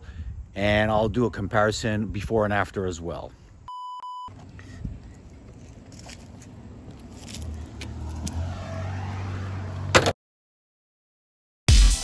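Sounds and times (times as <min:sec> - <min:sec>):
vehicle engine humming: 0:04.3 - 0:10.1.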